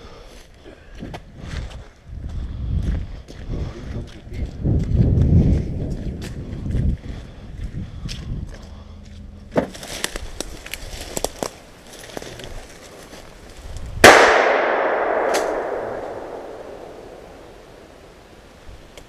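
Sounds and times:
dry leaves crunching underfoot: 9.7 - 13.8
twigs snapping underfoot: 9.7 - 13.9
loud gunshot with echo: 14.0 - 17.9.

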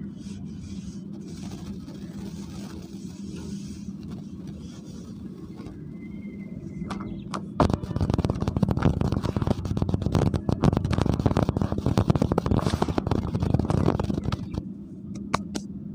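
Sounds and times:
hands crunching dry soil: 1.0 - 6.0, 7.6 - 14.6.

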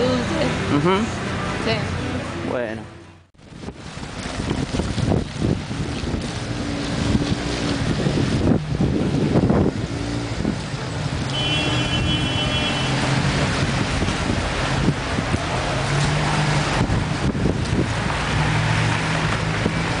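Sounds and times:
cars passing: 0.0 - 20.0
wind buffeting microphone: 3.4 - 20.0.

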